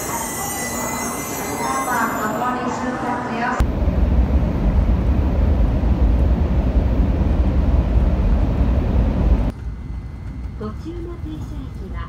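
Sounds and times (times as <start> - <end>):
vehicle rumble from inside: 3.6 - 9.6.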